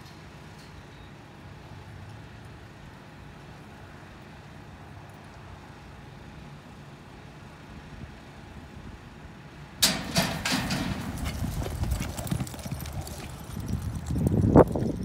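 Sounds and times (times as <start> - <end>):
metal chute clanging open: 9.8 - 11.5
horses galloping on dirt: 9.8 - 15.0.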